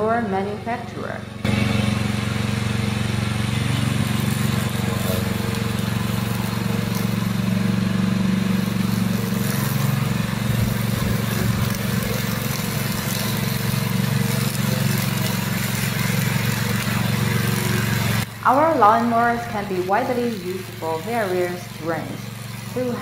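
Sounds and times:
lawn mower engine cutting grass: 0:00.3 - 0:23.0.

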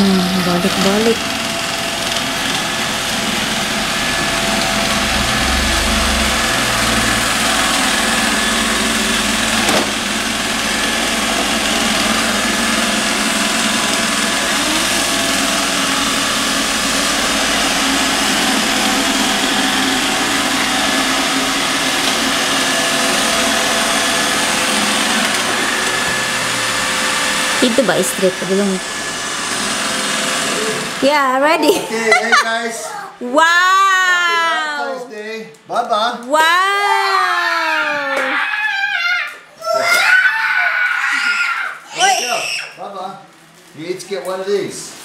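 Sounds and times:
robot vacuum whirring: 0:00.0 - 0:31.3.

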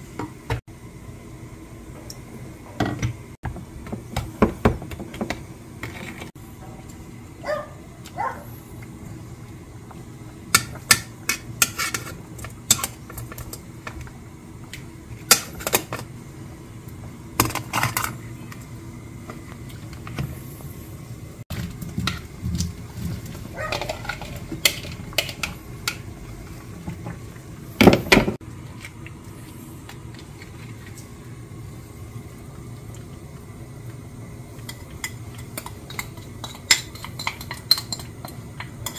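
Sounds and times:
metal tongs clinking on pot: 0:34.7 - 0:38.9.

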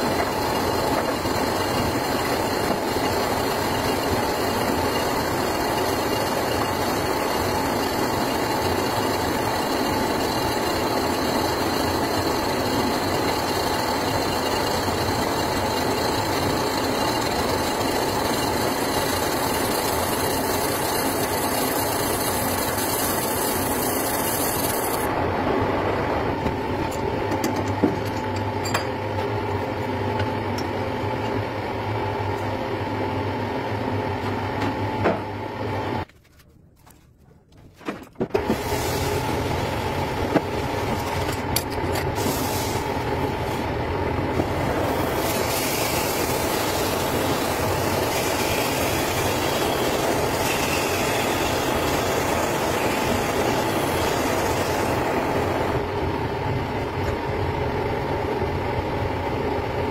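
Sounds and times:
metal lathe running: 0:00.0 - 0:25.2, 0:38.5 - 0:56.2.

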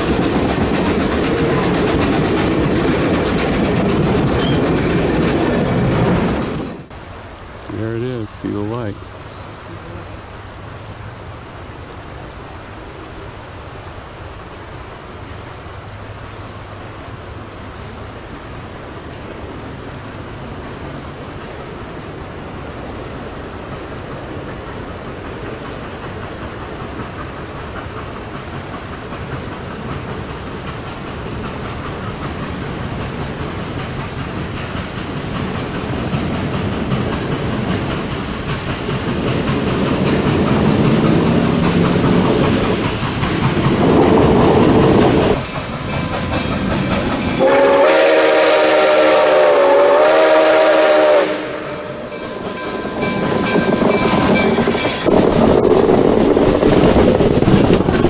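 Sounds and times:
train wheels clattering over rails: 0:00.0 - 0:06.9, 0:22.9 - 0:58.0
steam locomotive exhaust: 0:23.0 - 0:58.0
steam whistle blast: 0:47.3 - 0:52.2.

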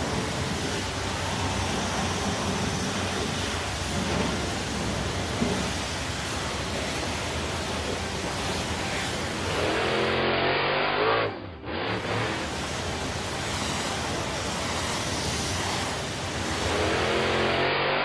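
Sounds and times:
cartoon spray hiss: 0:11.9 - 0:18.0.

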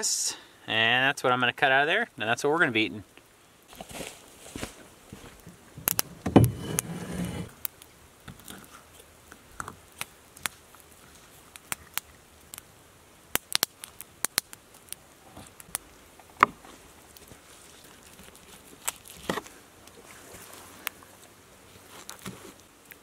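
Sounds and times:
rustle and thump of handling: 0:03.7 - 0:07.5, 0:16.3 - 0:22.7.

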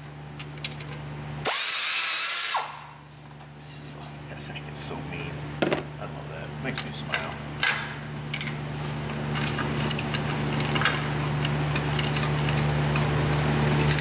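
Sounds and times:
steady low hum: 0:02.6 - 0:14.0.

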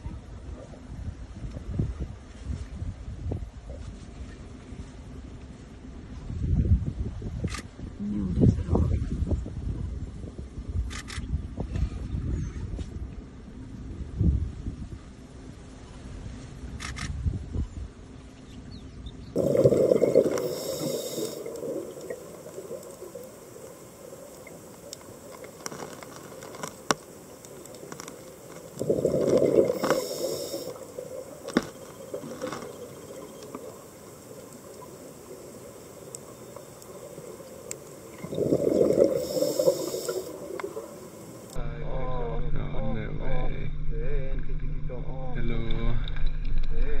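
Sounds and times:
exhaled bubbles rushing: 0:19.4 - 0:25.6, 0:28.7 - 0:36.0, 0:36.9 - 0:41.6
water hiss: 0:19.4 - 0:41.6
faint clicks: 0:20.2 - 0:41.6.

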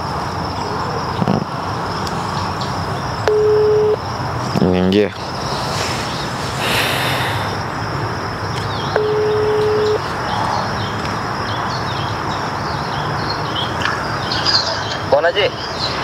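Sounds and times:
birds chirping: 0:00.0 - 0:16.0
steady outdoor hiss: 0:00.0 - 0:16.0
phone ringback tone: 0:03.2 - 0:04.0, 0:08.9 - 0:10.0.

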